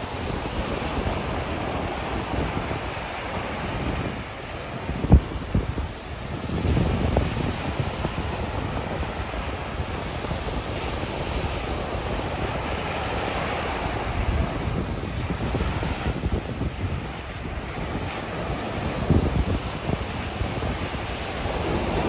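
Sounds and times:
surf washing up beach: 0.0s - 22.0s
wind buffeting microphone: 0.0s - 22.0s.

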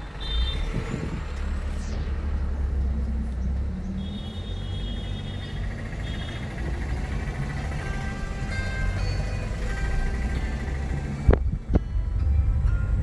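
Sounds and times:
car cabin rumble: 4.1s - 13.0s.

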